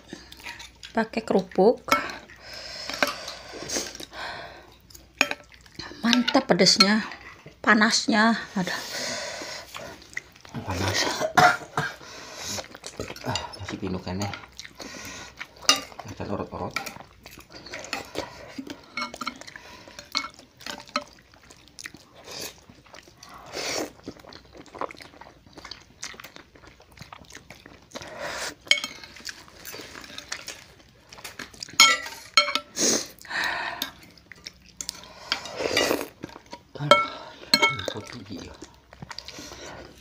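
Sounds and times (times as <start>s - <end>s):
slurping and chewing: 0.0s - 6.1s, 8.5s - 40.0s
spoons clinking on ceramic bowls: 15.6s - 16.0s, 18.9s - 19.4s, 20.0s - 20.4s, 28.7s - 29.1s, 31.8s - 32.7s, 36.8s - 38.1s.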